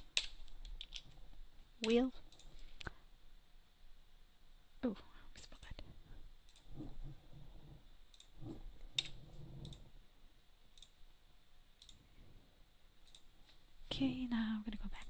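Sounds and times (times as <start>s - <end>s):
computer mouse clicks: 6.4s - 7.2s, 8.1s - 9.9s, 10.7s - 11.0s, 11.8s - 12.0s, 13.0s - 13.3s.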